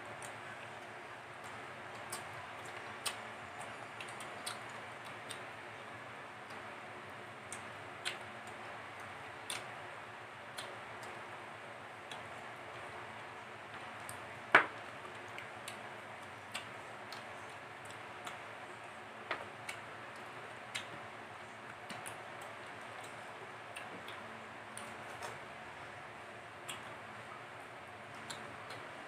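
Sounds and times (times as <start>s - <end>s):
chewing smacks: 16.4s - 18.5s.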